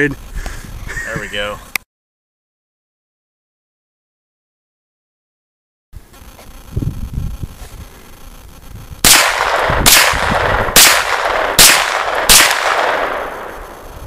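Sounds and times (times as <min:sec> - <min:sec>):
gunshots with echo: 0:09.0 - 0:13.9.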